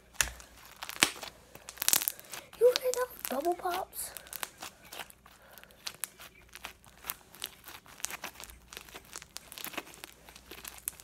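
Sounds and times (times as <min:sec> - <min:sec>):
slime bubbles popping: 0:00.2 - 0:04.5.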